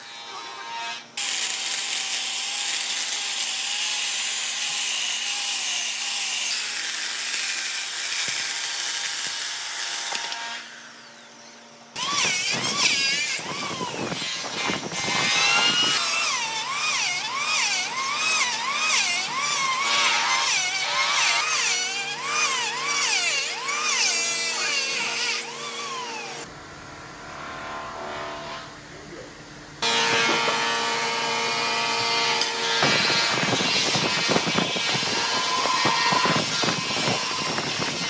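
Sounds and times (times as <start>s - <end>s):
power tool motor whining: 1.2s - 26.5s, 29.8s - 38.0s
workshop tool sounds: 29.8s - 38.0s.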